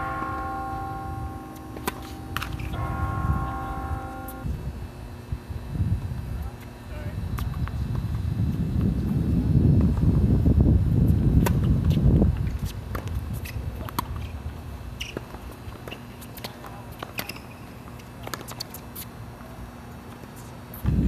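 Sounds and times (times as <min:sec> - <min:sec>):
ball bouncing: 0:00.0 - 0:03.6
racket hitting ball: 0:00.0 - 0:04.4
shoes scuffing on court: 0:01.4 - 0:03.6
wind buffeting microphone: 0:02.5 - 0:14.9.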